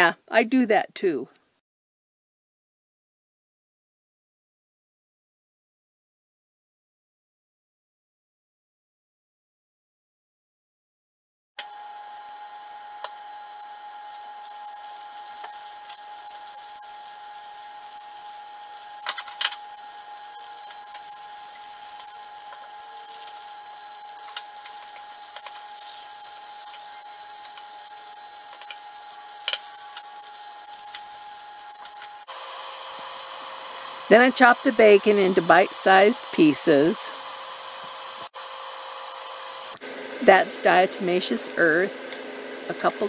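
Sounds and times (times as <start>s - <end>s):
meat sizzling: 11.6s - 41.4s
thin steady whine: 11.6s - 43.0s.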